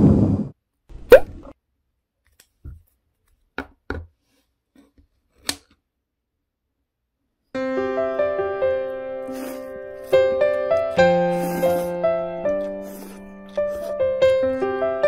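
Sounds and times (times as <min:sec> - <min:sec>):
piano music: 0:07.6 - 0:15.0.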